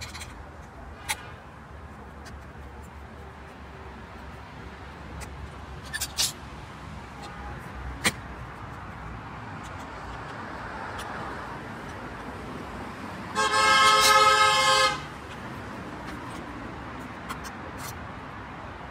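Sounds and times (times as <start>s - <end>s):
street background noise: 0.0s - 18.9s
car horn blast: 13.4s - 15.1s.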